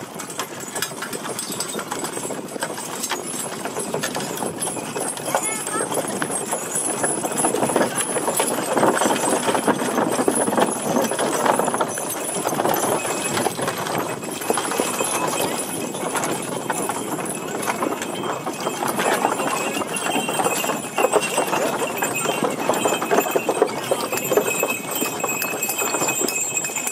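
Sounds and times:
hooves clip-clopping on dirt: 0:00.0 - 0:26.9
wooden wagons rolling: 0:00.0 - 0:26.9.

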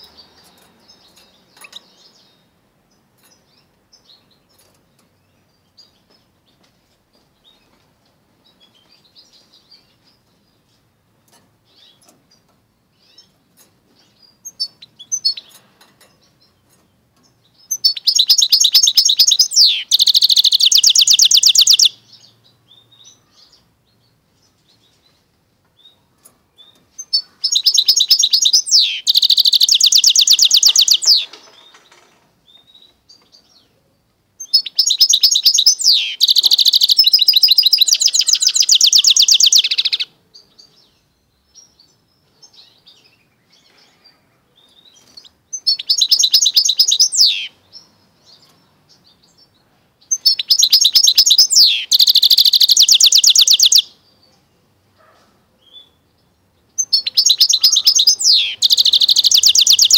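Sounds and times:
bird singing high trills: 0:17.7 - 0:22.0, 0:27.0 - 0:31.3, 0:34.4 - 0:40.1, 0:44.8 - 0:47.6, 0:50.1 - 0:54.0, 0:56.8 - 0:59.9.

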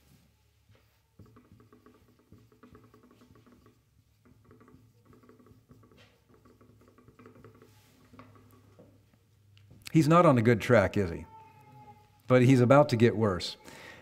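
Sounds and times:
marker squeaking on whiteboard: 0:00.8 - 0:09.1.

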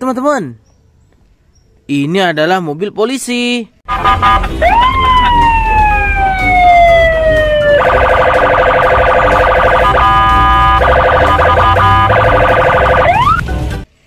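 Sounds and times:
police siren wailing and yelping: 0:03.9 - 0:13.4.

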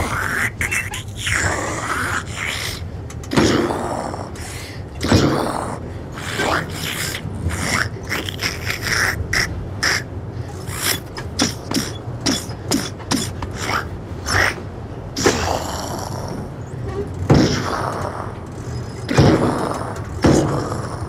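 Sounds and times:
person gasping and grunting: 0:00.0 - 0:14.6
train rumble: 0:00.0 - 0:21.0.

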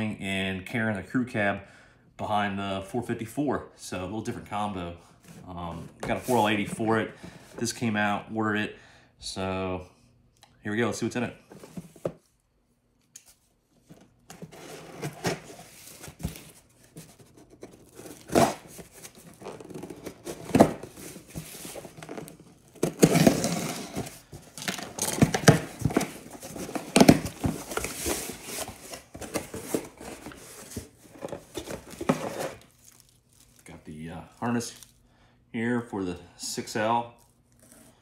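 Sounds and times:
contents rustling in a box: 0:13.9 - 0:35.0.

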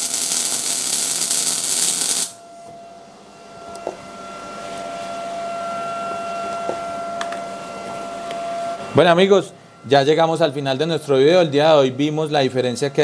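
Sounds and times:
welding arc hissing crackle: 0:00.0 - 0:02.4
steady high tone: 0:00.0 - 0:13.0.

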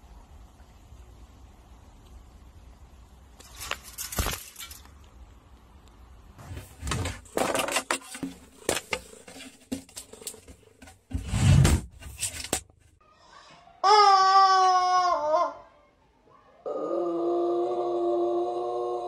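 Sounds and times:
rustling and handling noise: 0:03.3 - 0:13.0
heavy thump: 0:11.1 - 0:12.2.

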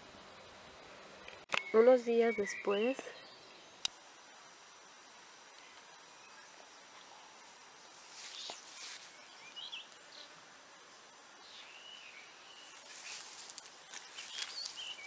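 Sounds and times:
high insect-like hiss: 0:03.5 - 0:15.0.

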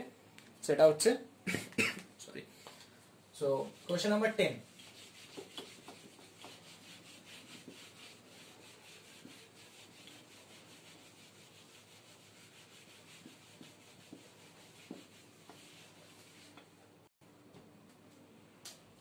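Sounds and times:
sponge rubbing a whiteboard: 0:03.4 - 0:16.7.

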